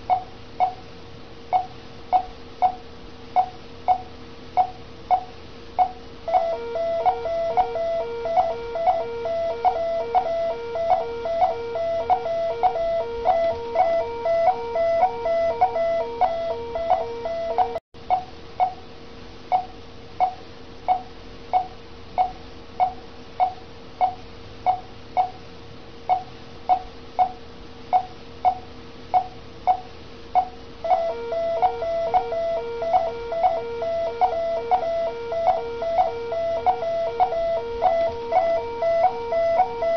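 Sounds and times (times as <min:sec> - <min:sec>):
patient monitor beeping: 0:03.4 - 0:17.8, 0:30.4 - 0:39.9
low repeating alarm tone: 0:06.3 - 0:17.8, 0:30.8 - 0:39.9.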